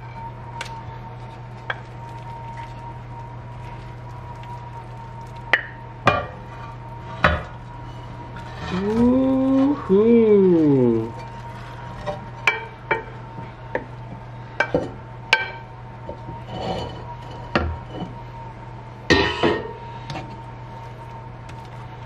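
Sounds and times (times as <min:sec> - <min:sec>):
steady low hum: 0:00.0 - 0:22.0
wooden spatula scraping a bowl: 0:06.5 - 0:09.9.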